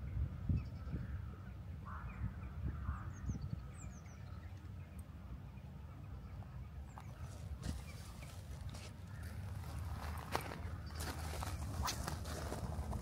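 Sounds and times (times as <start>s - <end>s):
wind rumble on microphone: 0.0s - 8.8s, 9.4s - 13.0s
footsteps on gravel: 7.3s - 13.0s.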